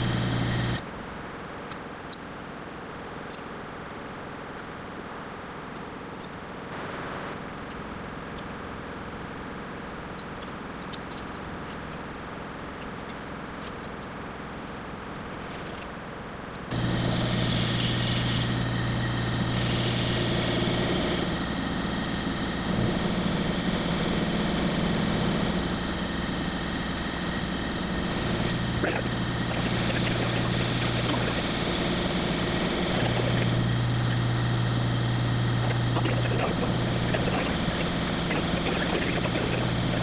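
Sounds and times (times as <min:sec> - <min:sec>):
milling machine cutting metal: 0:16.7 - 0:40.0.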